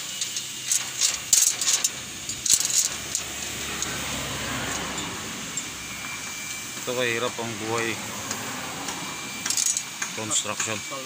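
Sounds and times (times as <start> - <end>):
metal rebar clinking: 0.2 - 4.0.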